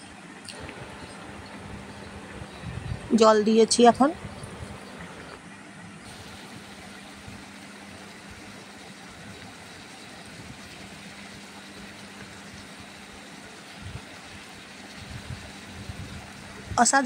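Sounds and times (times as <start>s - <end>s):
low hum: 0.0s - 12.7s
curry sizzling and bubbling: 0.5s - 5.4s, 6.0s - 17.0s.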